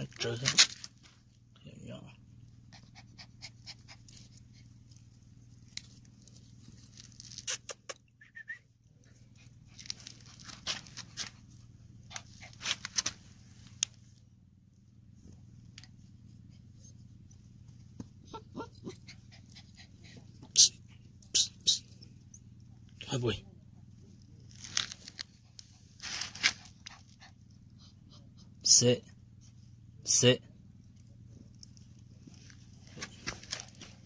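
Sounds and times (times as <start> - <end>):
steady low hum: 0.0 - 34.0
puppy squeak: 18.3 - 19.2.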